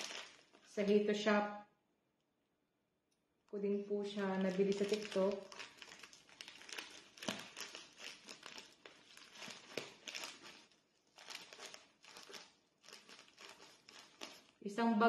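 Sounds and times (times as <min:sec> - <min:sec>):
scissors cutting plastic: 0:00.0 - 0:00.6, 0:04.2 - 0:14.6
plastic bag crinkling and rustling: 0:00.0 - 0:00.8, 0:04.1 - 0:14.6.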